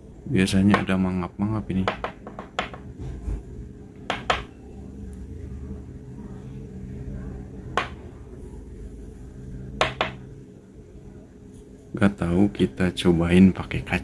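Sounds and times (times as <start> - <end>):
low steady hum: 0.0 - 14.0
stick tapping on glass: 1.8 - 2.9.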